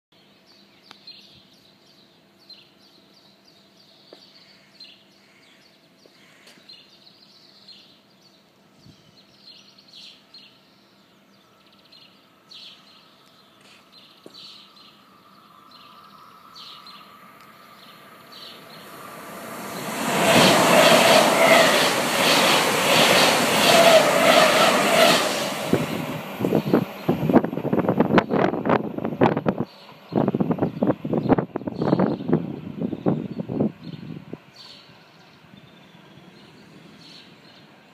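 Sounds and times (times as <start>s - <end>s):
train passing at speed: 14.3s - 37.9s.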